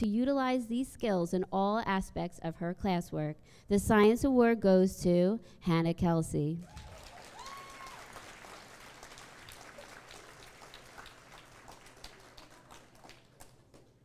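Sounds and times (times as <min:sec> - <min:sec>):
audience applauding: 0:06.7 - 0:14.0.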